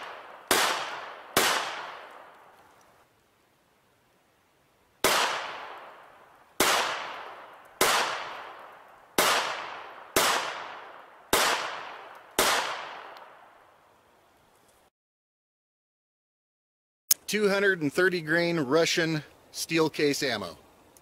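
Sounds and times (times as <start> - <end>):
pistol shots with echo: 0.0 - 2.3, 5.0 - 6.0, 6.6 - 13.5.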